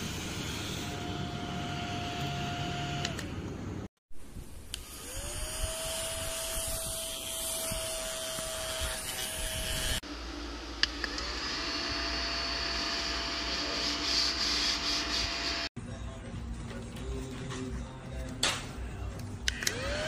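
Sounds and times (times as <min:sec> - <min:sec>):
mini vacuum cleaner whine: 0:00.0 - 0:03.4, 0:04.7 - 0:15.7, 0:19.5 - 0:20.0.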